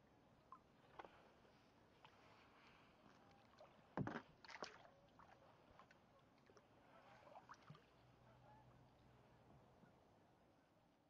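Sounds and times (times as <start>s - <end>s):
faint water sounds: 0.2s - 10.1s
small splashes: 3.5s - 5.4s.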